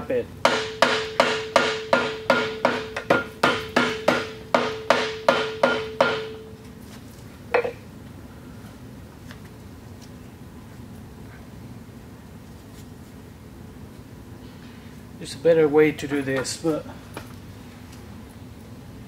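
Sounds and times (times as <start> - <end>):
hammer tapping on metal: 0.5 - 6.5.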